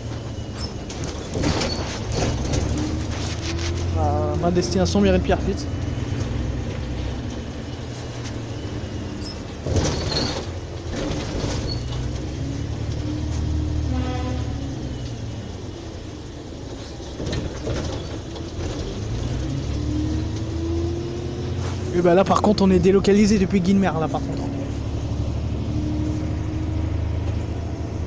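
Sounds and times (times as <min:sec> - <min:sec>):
bus diesel engine idling: 0:00.0 - 0:28.0.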